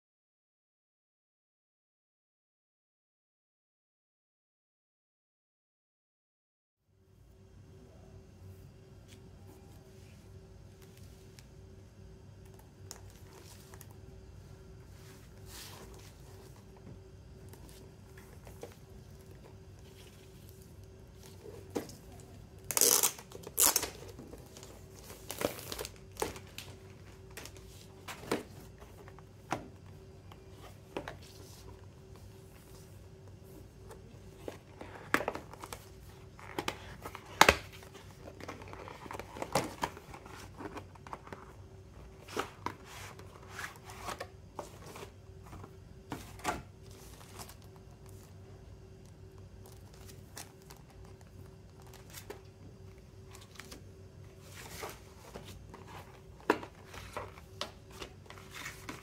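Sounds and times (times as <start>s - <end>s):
plastic wrap crinkling and tearing: 22.6s - 24.1s, 25.0s - 26.6s.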